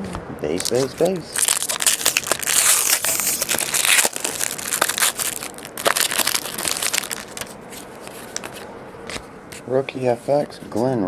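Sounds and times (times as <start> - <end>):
foil wrapper crinkling: 0.5 - 8.7
cards handled with light clicks: 7.4 - 9.6.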